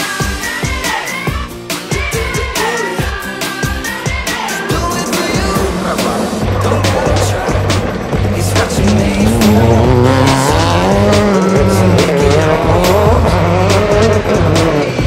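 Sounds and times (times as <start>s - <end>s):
background music: 0.0s - 15.0s
race car engines revving: 4.4s - 15.0s.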